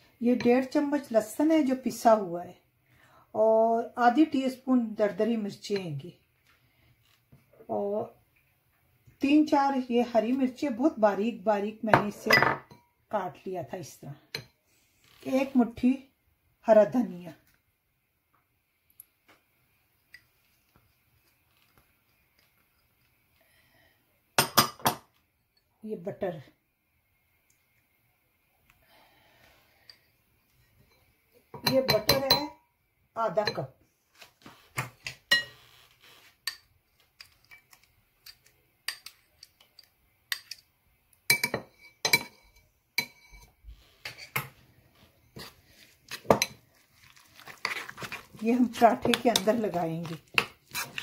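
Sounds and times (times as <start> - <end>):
metal spoon clinking on ceramic bowl: 12.3 - 12.8, 30.9 - 32.6, 35.3 - 35.6, 38.2 - 39.2, 39.8 - 40.6, 41.3 - 43.5.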